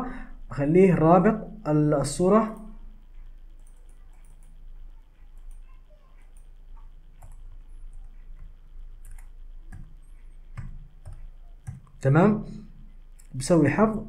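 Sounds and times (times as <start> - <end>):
low steady hum: 0.0 - 14.0
computer keyboard typing: 3.6 - 12.1.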